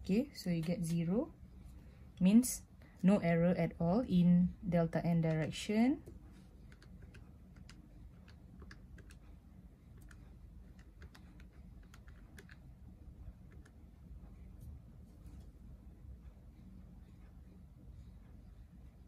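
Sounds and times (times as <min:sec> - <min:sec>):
calculator keys clicking: 0:06.7 - 0:09.2, 0:10.0 - 0:12.6.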